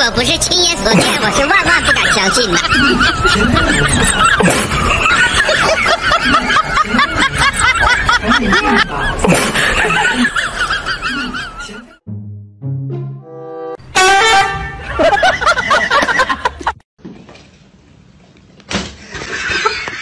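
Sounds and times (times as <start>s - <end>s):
people snickering laughter: 1.7s - 12.0s, 14.8s - 16.8s, 19.0s - 20.0s.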